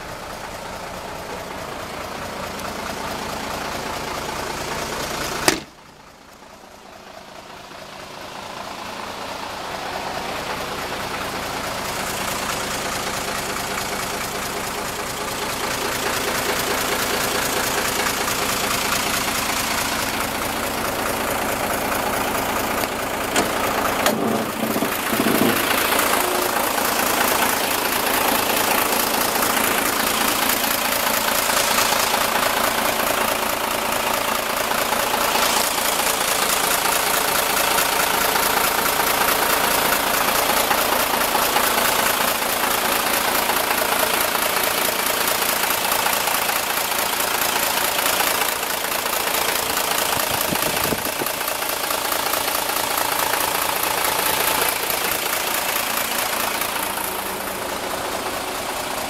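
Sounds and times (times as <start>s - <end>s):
diesel engine idling: 0.0s - 59.0s
brief engine knocks: 5.4s - 5.8s, 22.9s - 25.8s.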